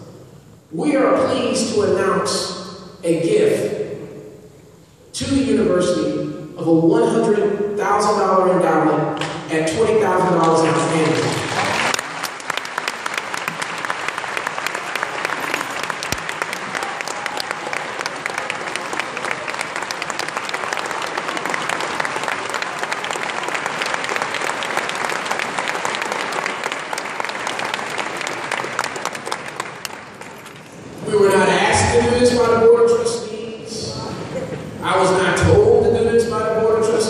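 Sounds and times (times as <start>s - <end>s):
audience applauding: 10.7s - 30.8s.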